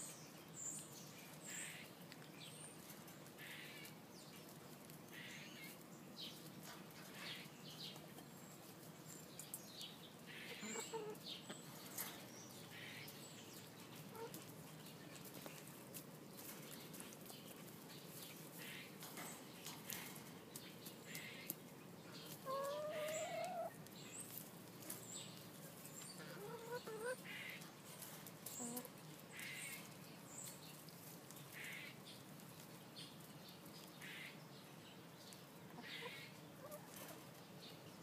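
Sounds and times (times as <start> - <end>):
hens pecking in straw: 0.0 - 34.4, 35.0 - 38.0
hens calling softly: 10.2 - 15.2, 22.2 - 24.4, 25.8 - 30.0, 35.6 - 37.2.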